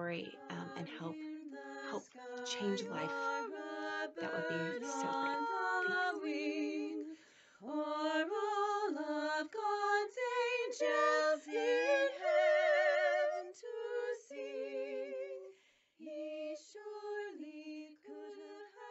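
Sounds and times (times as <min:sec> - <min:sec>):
woman singing unaccompanied: 0:00.2 - 0:14.7.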